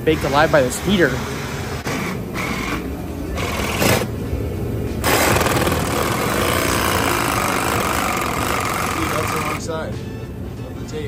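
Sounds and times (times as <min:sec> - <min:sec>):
reciprocating saw cutting steel: 0:05.0 - 0:09.6.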